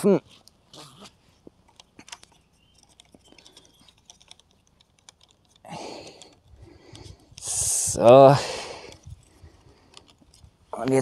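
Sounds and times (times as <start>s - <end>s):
wooden sticks clicking and tapping: 1.7s - 7.5s.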